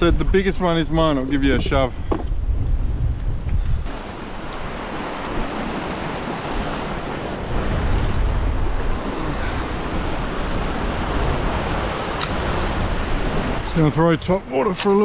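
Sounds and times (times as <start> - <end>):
wind buffeting microphone: 0.0 - 15.0
surf washing over rocks: 3.9 - 15.0.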